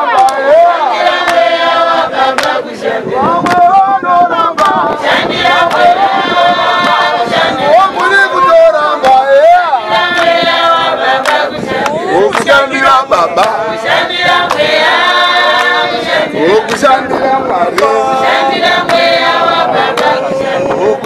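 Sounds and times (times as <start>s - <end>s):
women's choir singing: 0.0s - 21.0s
hand claps: 1.2s - 1.6s, 2.3s - 2.7s, 3.3s - 3.8s, 4.5s - 6.0s, 7.9s - 8.2s, 9.0s - 9.2s, 10.0s - 12.6s, 13.4s - 14.8s, 15.5s - 15.8s, 16.6s - 16.9s, 17.7s - 20.3s.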